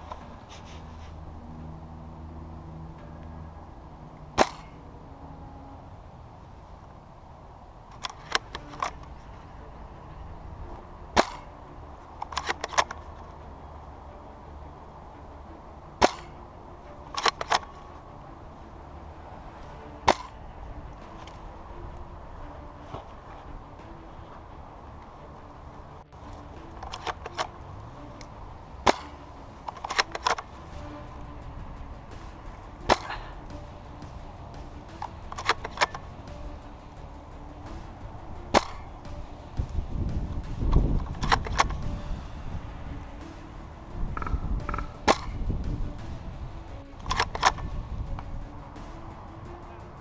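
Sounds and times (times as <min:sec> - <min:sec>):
airsoft rifle shots: 0:04.4 - 0:04.8, 0:11.2 - 0:11.5, 0:16.0 - 0:16.4, 0:32.8 - 0:33.5, 0:38.5 - 0:39.0, 0:44.2 - 0:45.5
rifle clicks and clacks: 0:07.9 - 0:09.1, 0:12.2 - 0:13.3, 0:17.1 - 0:17.8, 0:26.3 - 0:27.6, 0:28.2 - 0:30.5, 0:34.6 - 0:36.7, 0:38.5 - 0:39.8, 0:40.4 - 0:42.0, 0:47.0 - 0:49.8.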